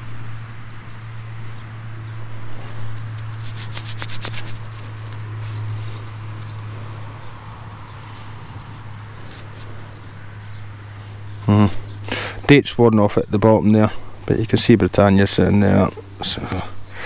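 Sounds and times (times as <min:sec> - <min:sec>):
steady low hum: 0:00.0 - 0:17.0
fingers rubbing soil off coin: 0:02.3 - 0:06.5.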